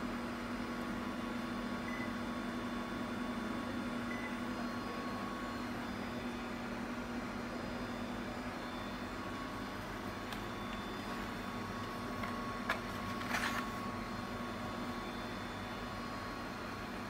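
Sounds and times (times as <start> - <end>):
steady machine hum: 0.0 - 17.0
air conditioner short high beeps: 1.6 - 16.6.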